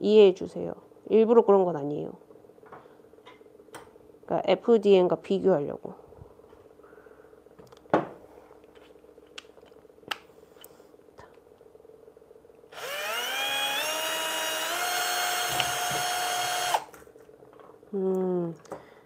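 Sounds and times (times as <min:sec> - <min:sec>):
cordless drill whining: 0:12.7 - 0:16.9.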